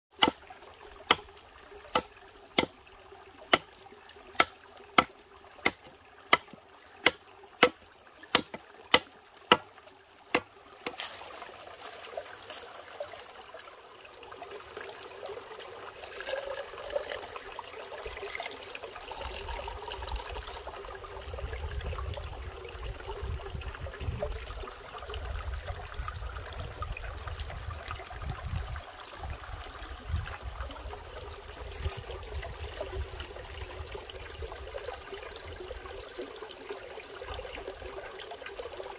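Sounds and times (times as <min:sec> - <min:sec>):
machete striking bamboo: 0:04.4 - 0:09.7
water trickling into cup: 0:11.2 - 0:38.9.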